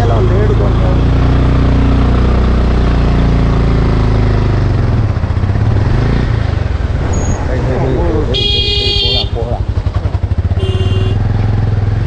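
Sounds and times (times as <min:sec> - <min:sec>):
motorcycle engine running: 0:00.0 - 0:12.0
steady rushing noise: 0:05.0 - 0:10.0.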